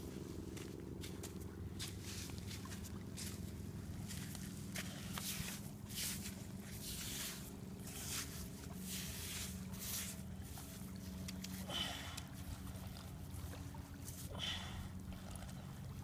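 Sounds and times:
steady low hum: 0.0 - 16.0
hand digging in wet sand: 5.0 - 11.6.

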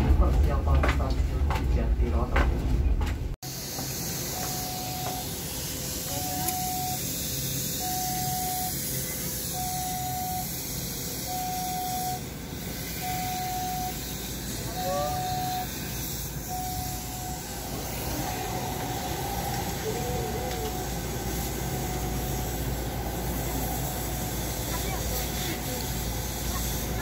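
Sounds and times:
train running noise: 0.0 - 27.0
electronic warning beep: 4.3 - 5.3, 6.0 - 7.0, 7.7 - 8.8, 9.5 - 10.6, 11.2 - 12.3, 13.0 - 14.0, 14.6 - 15.8, 16.4 - 22.5
rising squeak: 16.4 - 24.3.

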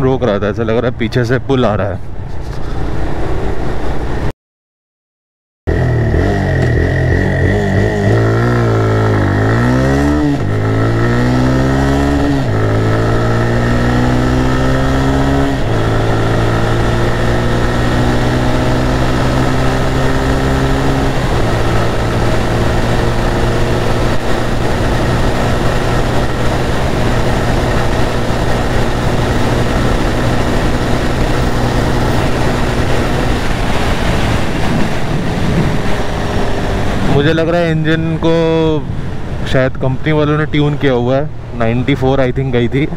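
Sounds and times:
motorcycle engine accelerating: 5.7 - 39.5.

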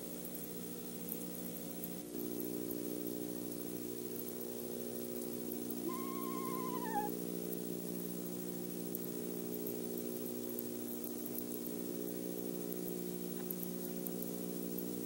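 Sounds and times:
low electrical hum: 0.0 - 15.0
faint tick: 10.5 - 14.9.

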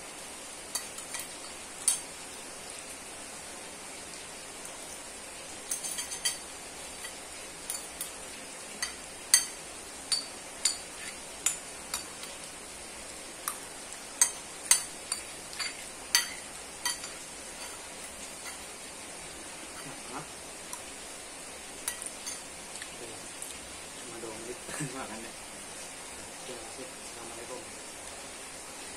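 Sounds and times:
steady hiss: 0.0 - 28.9
cutlery clinking on plate: 5.7 - 6.4.

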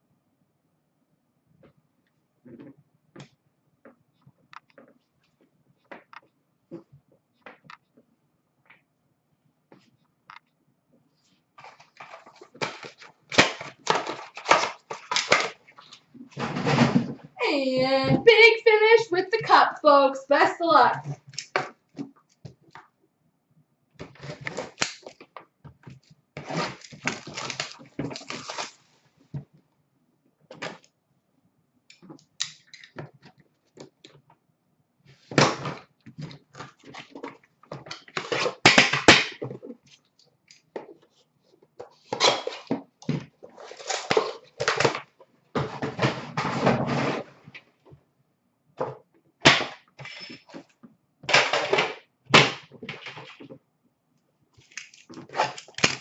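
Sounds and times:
cardboard and packaging rustling: 11.5 - 17.4, 26.0 - 29.4, 39.4 - 47.6.

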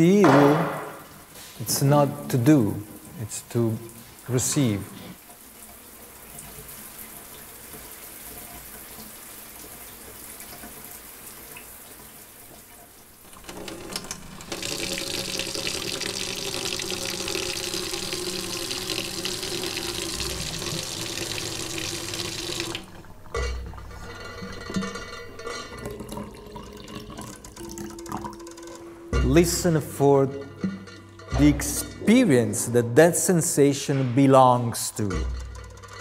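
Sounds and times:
short knocks: 0.2 - 1.3
water running from a tap: 0.3 - 32.1.

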